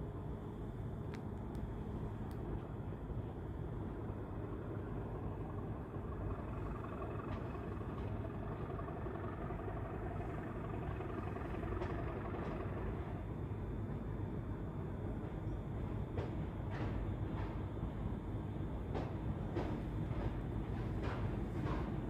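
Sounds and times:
distant diesel locomotive rumbling: 0.0 - 22.0.

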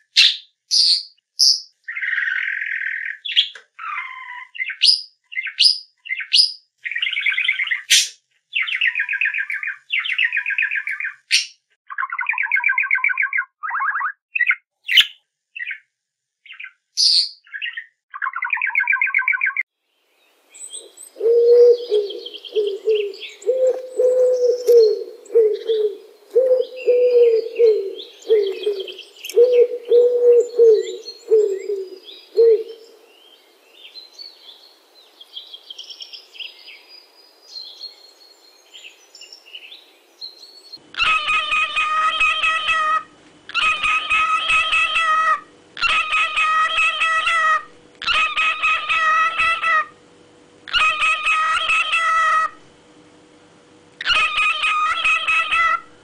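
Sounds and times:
bird singing whistled phrases: 20.6 - 32.9
pigeons cooing: 21.1 - 33.0.

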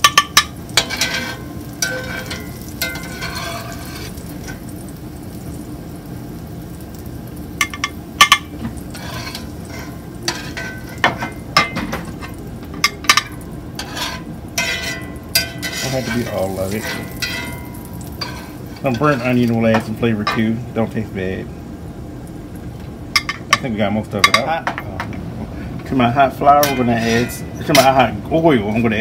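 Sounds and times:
oil sizzling in a skillet: 0.0 - 24.6
metal spatula scraping a pan: 0.8 - 4.6, 8.8 - 11.4, 13.8 - 19.4, 26.6 - 28.8.

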